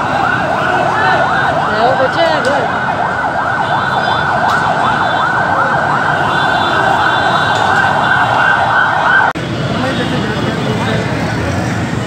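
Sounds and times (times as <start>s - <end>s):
ambulance siren wailing: 0.0s - 9.4s.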